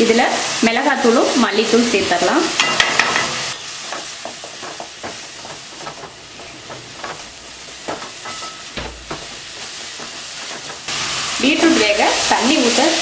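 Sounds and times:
vegetables sizzling in oil: 0.0 - 13.0
wooden spatula scraping pan: 3.8 - 12.0.

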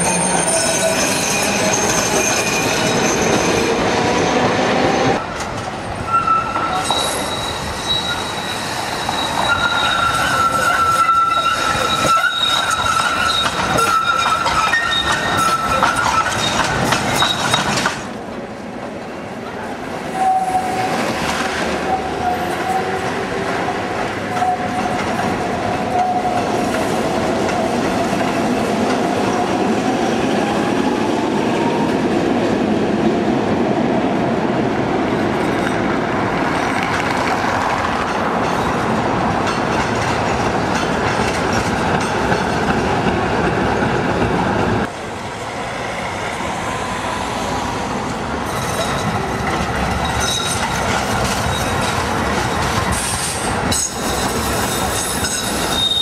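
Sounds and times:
high tram wheel squeal: 0.0 - 4.0, 6.0 - 18.0, 20.1 - 27.6, 48.4 - 56.0
tram rail rumble: 0.0 - 56.0.

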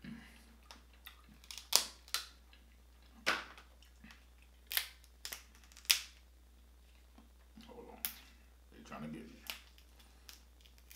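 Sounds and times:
crab shell cracking: 0.7 - 2.4, 4.1 - 6.2, 9.4 - 10.9.

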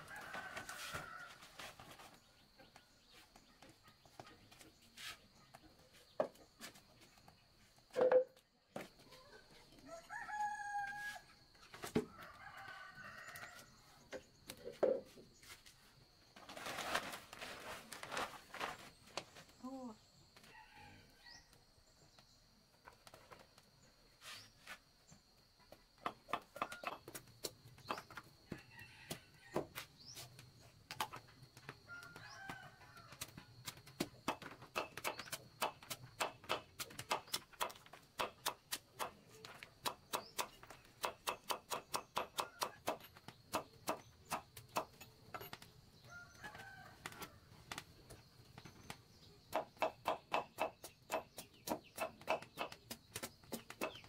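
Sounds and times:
knife chopping on stone: 39.8 - 45.0.

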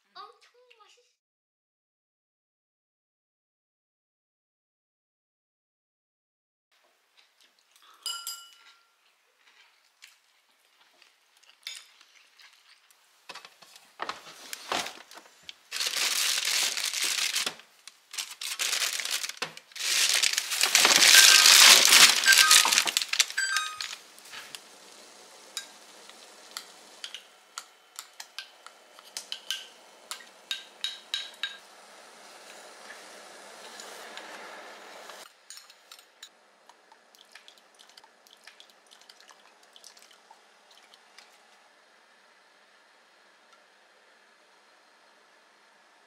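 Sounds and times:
light clicks and clinks: 7.8 - 8.9
plastic bags crinkling: 14.5 - 24.0.

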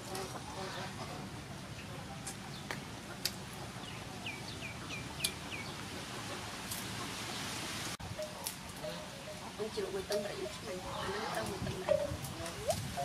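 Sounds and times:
outdoor background noise: 0.0 - 13.0
bird chirping: 3.8 - 5.8.

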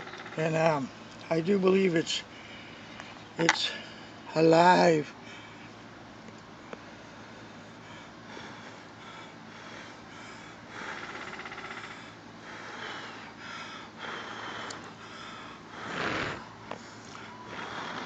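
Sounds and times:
person blowing on ember: 14.0 - 18.0.

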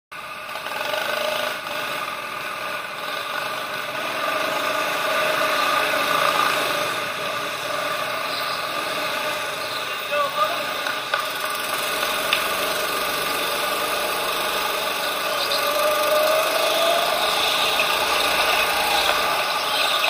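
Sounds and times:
go-karts droning: 0.2 - 20.0.

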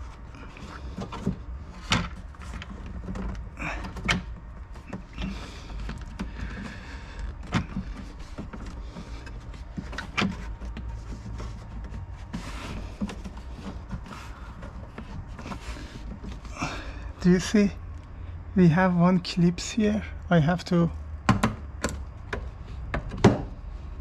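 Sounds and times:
plastic trim rubbing and scraping: 0.0 - 17.9.

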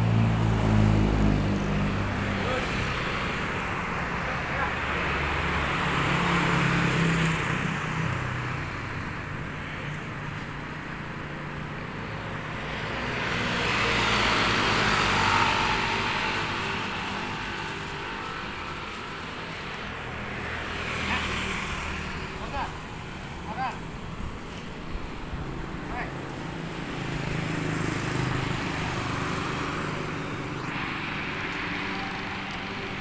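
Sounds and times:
vehicles passing on street: 0.0 - 33.0.

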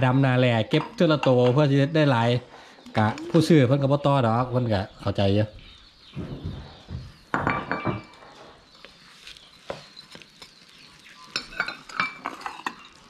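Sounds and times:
dishes clinking and scraping: 0.0 - 2.7, 7.3 - 8.7, 9.7 - 13.0.

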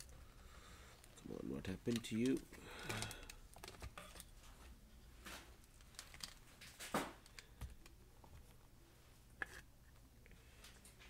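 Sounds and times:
hands handling circuit board: 1.0 - 8.6.

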